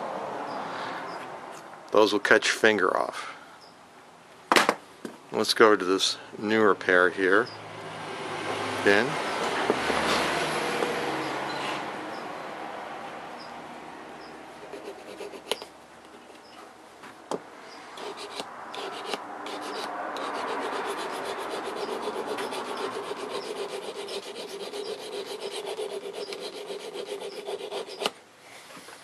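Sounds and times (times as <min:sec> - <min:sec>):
hone rasping on steel blade: 0:18.0 - 0:28.2.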